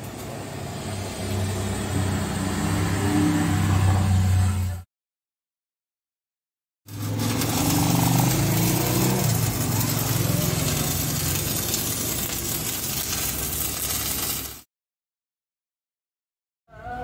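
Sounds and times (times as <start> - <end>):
crackling welding arc: 0.0 - 3.6, 6.9 - 14.7
low welder buzz: 0.0 - 4.8, 6.9 - 14.7.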